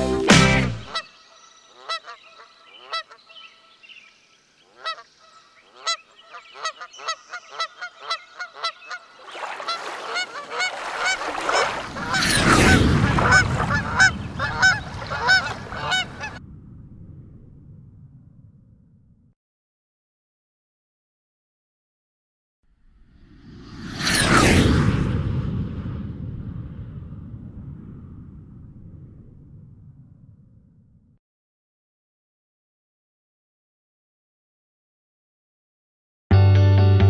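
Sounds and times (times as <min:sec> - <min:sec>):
geese honking: 0:00.5 - 0:03.8, 0:04.7 - 0:16.4
low rushing noise: 0:11.3 - 0:19.2, 0:22.9 - 0:30.8.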